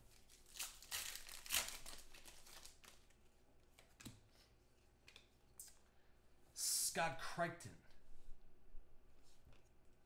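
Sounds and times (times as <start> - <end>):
cards crinkling rustle: 0.1 - 3.2.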